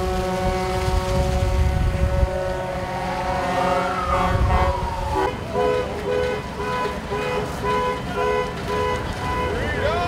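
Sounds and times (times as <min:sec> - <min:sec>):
wind on microphone: 0:00.0 - 0:05.4
low engine rumble: 0:00.0 - 0:10.0
vehicle horns sounding: 0:00.0 - 0:10.0.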